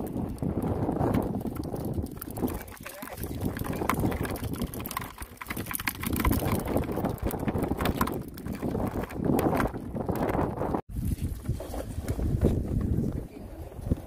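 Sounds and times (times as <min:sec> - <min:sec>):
wet clicks and rattles: 0:00.0 - 0:10.6
fish flapping: 0:00.0 - 0:12.8
wind on microphone: 0:00.0 - 0:14.0
water splashing: 0:01.2 - 0:10.4.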